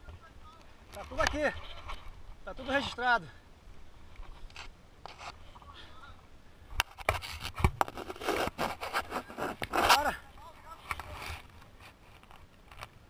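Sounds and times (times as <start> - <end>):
scraping and rustling of gear: 7.0 - 13.0.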